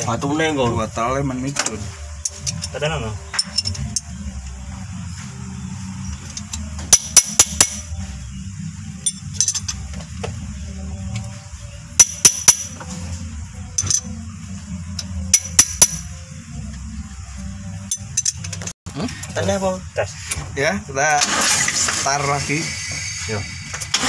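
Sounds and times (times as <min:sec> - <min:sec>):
steady low hum: 0:00.0 - 0:21.2
spanners clinking on metal: 0:01.6 - 0:04.1, 0:09.0 - 0:09.9, 0:13.8 - 0:14.2, 0:17.8 - 0:19.4.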